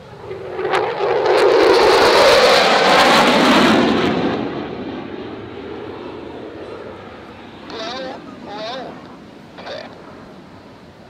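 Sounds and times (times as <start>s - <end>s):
jet engine flyby: 0.0s - 11.0s
sharp crackles: 9.6s - 10.0s.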